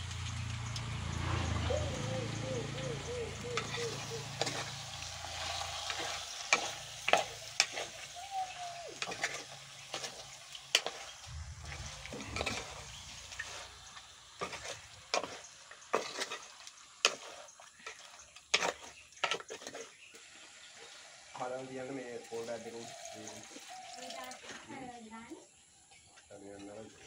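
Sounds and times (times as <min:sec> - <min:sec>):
meat sizzling: 0:01.8 - 0:18.8.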